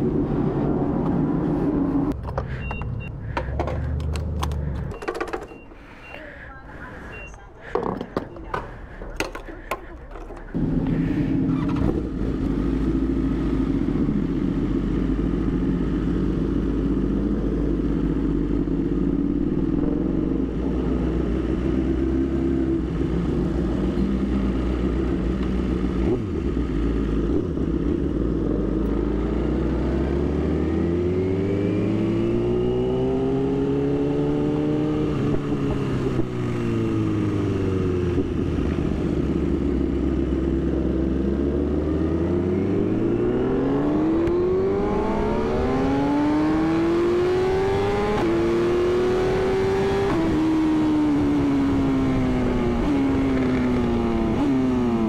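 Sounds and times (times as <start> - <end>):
motorcycle engine revving: 10.5 - 55.0.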